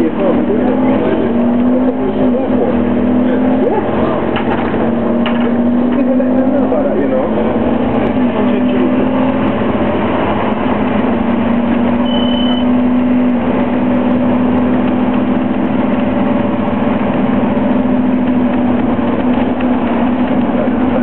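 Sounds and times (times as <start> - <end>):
bus diesel engine running: 0.0 - 21.0
road noise: 0.0 - 21.0
high beep: 12.0 - 12.8.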